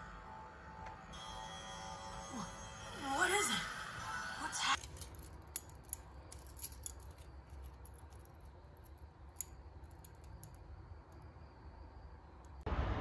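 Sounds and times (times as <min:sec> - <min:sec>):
low room hum: 0:00.0 - 0:13.0
metal keychain clinking: 0:04.8 - 0:10.6.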